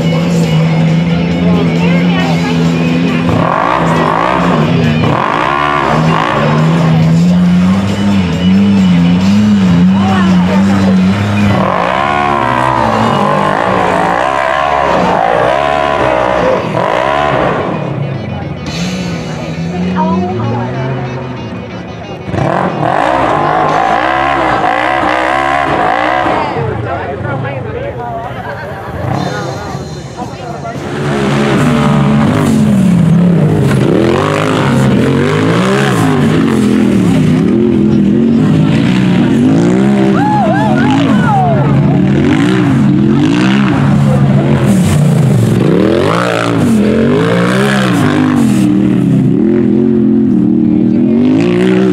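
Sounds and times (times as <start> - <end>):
buggy engine revving hard: 0.0 - 27.5, 28.3 - 51.9.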